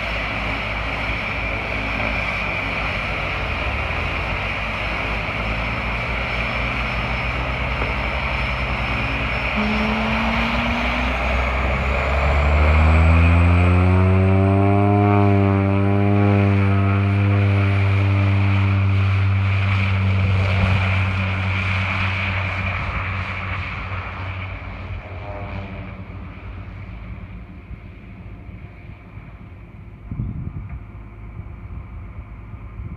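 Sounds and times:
turboprop plane taking off: 0.0 - 32.9.

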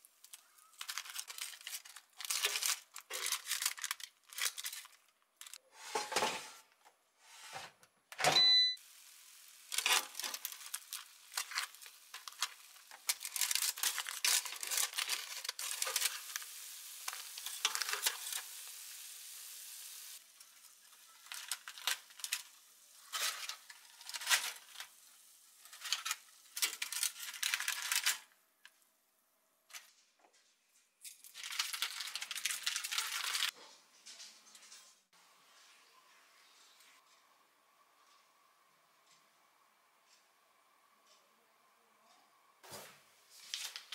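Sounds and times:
paper rustling: 0.3 - 6.2, 9.7 - 16.5, 21.1 - 24.9, 25.7 - 28.2, 31.1 - 33.5, 42.6 - 43.9
chicken sizzling: 8.8 - 28.3.

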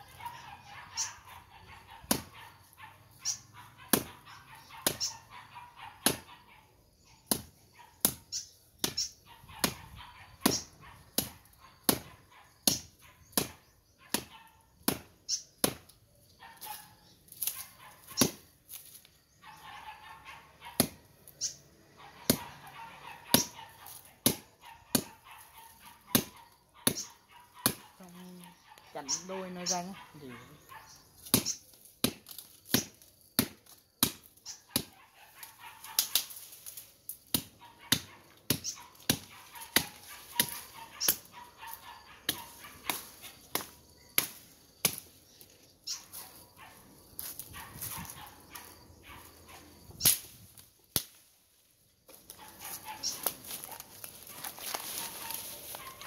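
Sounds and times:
machete chopping brush: 2.0 - 2.4, 3.2 - 4.2, 4.8 - 5.2, 6.0 - 6.3, 7.2 - 16.0, 17.3 - 19.1, 20.8 - 21.6, 23.3 - 25.2, 26.1 - 27.9, 31.2 - 41.3, 42.3 - 46.2, 47.1 - 48.8, 49.9 - 51.4, 52.1 - 56.0
leaves and stems rustling: 16.5 - 19.3, 34.4 - 37.3, 38.2 - 56.0.

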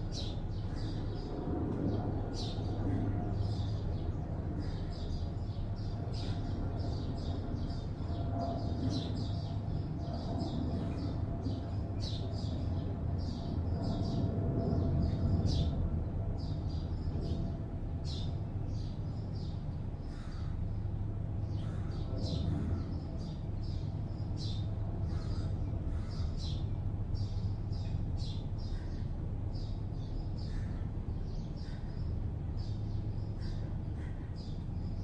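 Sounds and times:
small birds chirping: 0.0 - 15.7
low hum of city traffic: 0.0 - 35.0.

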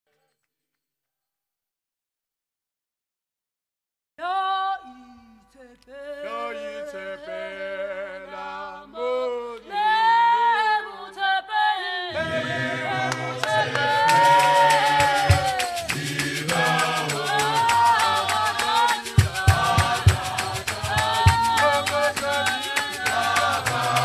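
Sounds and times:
choir singing a hymn: 5.9 - 24.0
lead voice singing: 5.9 - 24.0
steady drum beat: 13.6 - 24.0.

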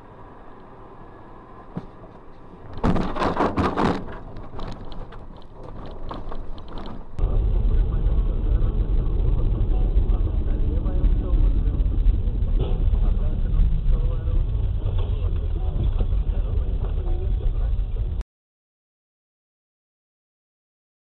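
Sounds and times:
car engine rumble: 0.0 - 18.2
road noise: 0.0 - 18.2
vehicle collision crunch: 1.7 - 10.6
knocks and rattles: 1.8 - 7.2.

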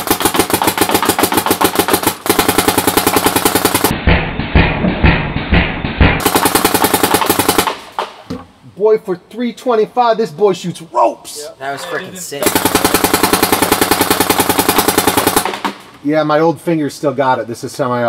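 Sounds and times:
paintball marker firing rapidly: 0.0 - 4.7, 5.5 - 8.2, 12.4 - 15.9.

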